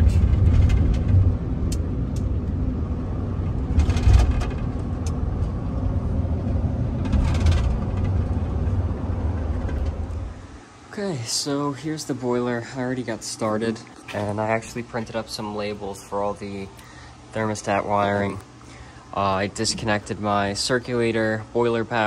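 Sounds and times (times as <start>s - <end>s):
engine and tyre rumble: 0.0s - 10.5s.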